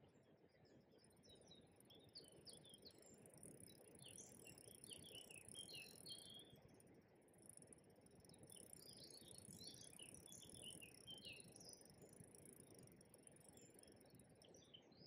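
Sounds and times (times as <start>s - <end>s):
songbird chirping: 1.0s - 6.8s, 7.4s - 15.0s.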